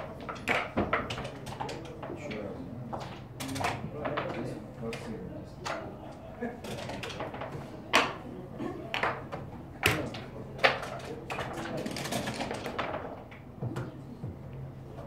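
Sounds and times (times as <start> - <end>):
murmur of voices: 0.0 - 15.0
backgammon pieces clacking: 0.2 - 2.1, 6.6 - 8.2, 9.0 - 13.4.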